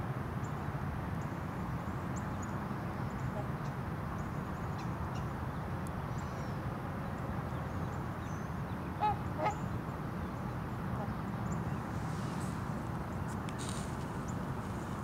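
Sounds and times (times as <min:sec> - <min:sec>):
swan honking: 0:09.0 - 0:09.6.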